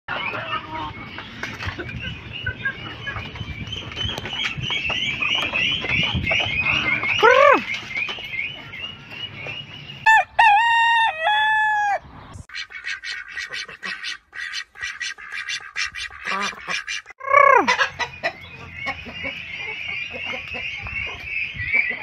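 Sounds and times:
chickens clucking: 0.1 - 22.0
rooster crowing: 10.0 - 12.0
chicken squawk: 10.1 - 22.0.

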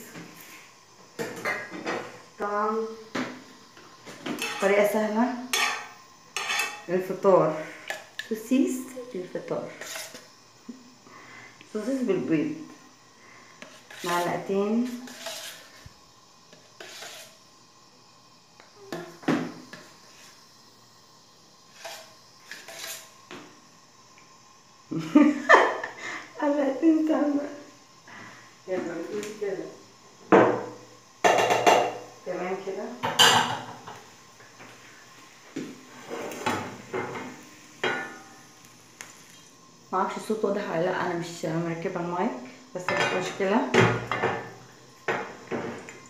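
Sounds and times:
faint steady hiss: 0.0 - 46.0
utensils clattering against pan: 4.3 - 4.8, 5.5 - 6.9, 14.9 - 15.7, 33.0 - 34.0, 42.8 - 44.5
frying pan clanking on metal grate: 31.2 - 32.0, 33.0 - 33.9.

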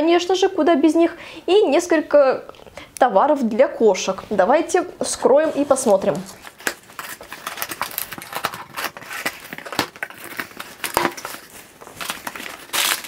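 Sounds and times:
packing paper rustling: 5.6 - 13.0
packing tape pulled off: 6.4 - 13.0.

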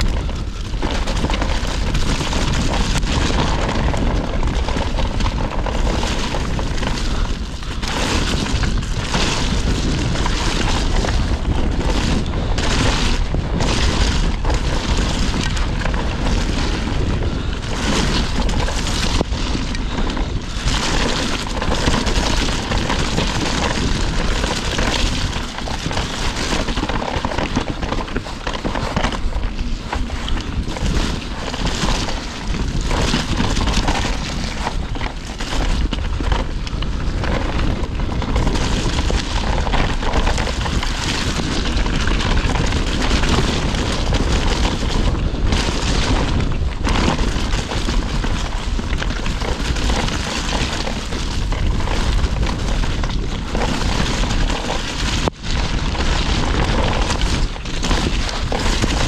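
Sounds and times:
bike clattering over bumps: 0.0 - 59.0
tyre noise on dirt: 0.0 - 59.0
wind buffeting microphone: 0.0 - 59.0.

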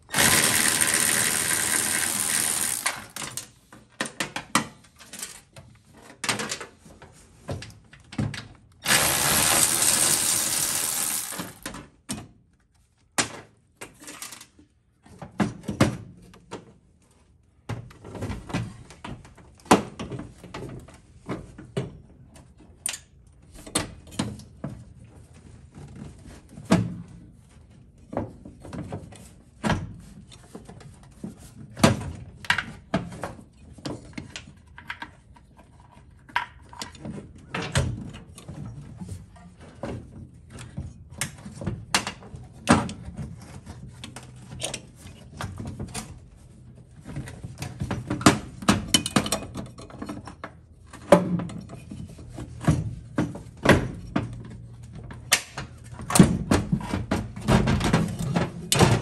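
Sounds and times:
electric ratchet spinning: 0.0 - 3.4, 8.8 - 11.7.

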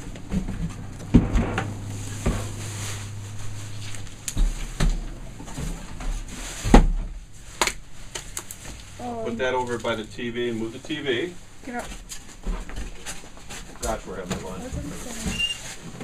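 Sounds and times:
cardboard boxes knocking and thumping: 0.0 - 3.3, 4.4 - 8.8
low hum: 0.0 - 11.7.

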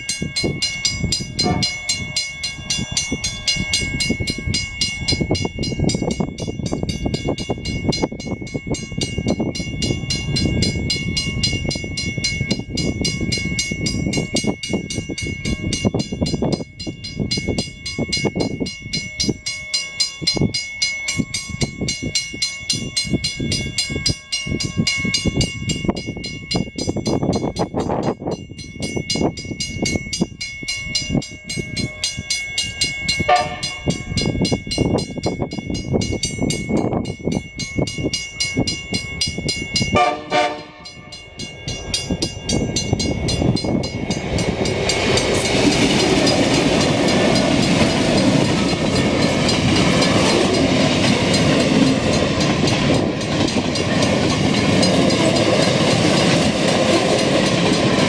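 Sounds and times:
diesel locomotives and wagons passing: 0.0 - 58.0
level crossing bells ringing: 0.0 - 58.0
train horn blasts: 1.4 - 2.0, 33.3 - 34.0, 40.0 - 41.2.

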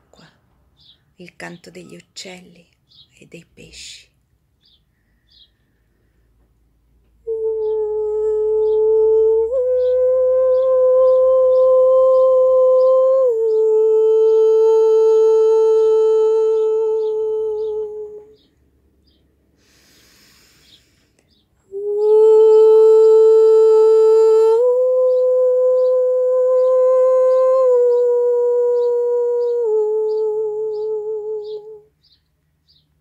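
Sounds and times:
woman humming wordless chant: 1.2 - 4.1, 7.2 - 18.5, 21.6 - 32.0.

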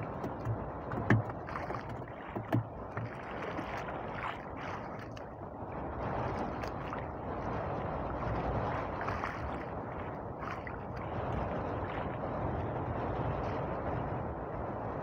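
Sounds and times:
water lapping against boat hull: 0.0 - 13.9
sharp knocks: 0.1 - 3.2.

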